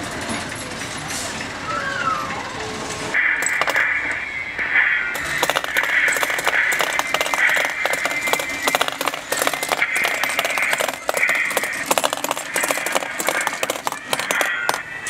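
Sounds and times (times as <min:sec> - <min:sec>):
small hammers clattering: 0:03.4 - 0:04.2, 0:05.2 - 0:15.0.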